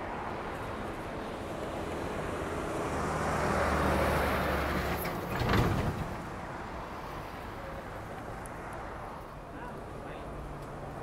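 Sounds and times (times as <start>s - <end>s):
vehicle passing on wet street: 1.4s - 5.6s.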